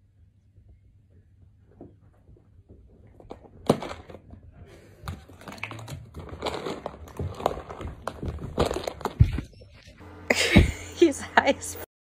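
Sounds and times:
cat rummaging in plastic tub: 0:03.0 - 0:09.9.

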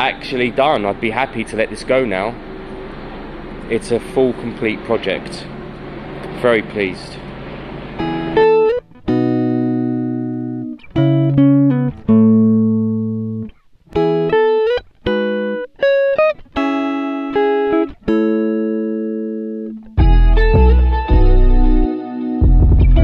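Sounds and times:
plucked guitar notes: 0:08.0 - 0:23.0.

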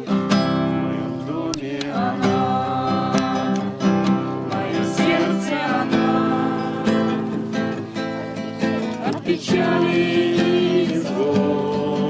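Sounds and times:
acoustic guitar strumming: 0:00.0 - 0:12.0
people singing: 0:00.7 - 0:12.0.

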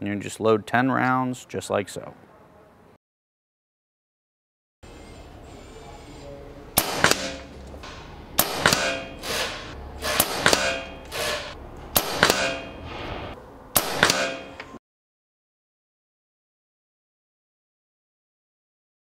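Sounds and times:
air rifle shots: 0:06.8 - 0:07.5, 0:08.4 - 0:12.8, 0:13.8 - 0:14.6.

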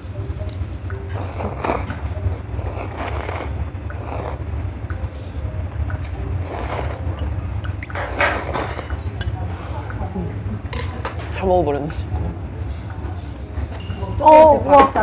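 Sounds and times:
steady low hum: 0:00.0 - 0:15.0
slurping noodles: 0:01.0 - 0:04.5, 0:06.0 - 0:07.4, 0:08.0 - 0:09.1.

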